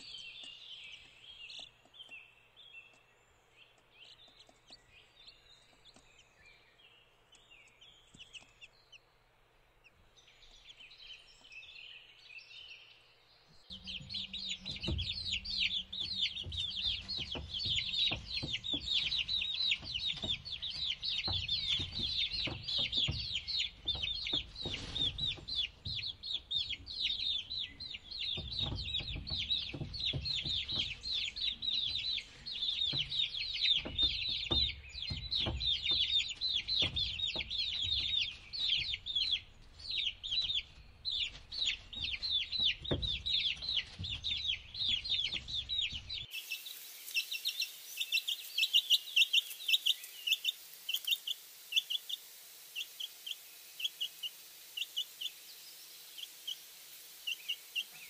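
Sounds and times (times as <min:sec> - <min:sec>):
chicks peeping: 0:00.0 - 0:58.0
hens clucking: 0:13.7 - 0:46.3.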